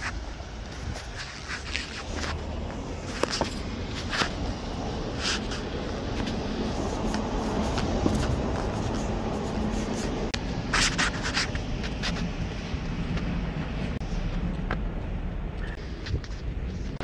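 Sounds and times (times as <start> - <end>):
sharp scrapes: 0.0 - 12.4
footsteps scuffing on pavement: 0.0 - 17.0
low rumble of wind: 0.0 - 17.0.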